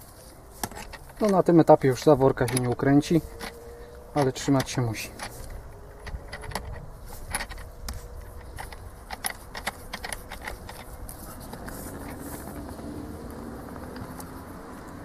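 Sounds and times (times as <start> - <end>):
metallic clicks and clinks: 0.6 - 12.6.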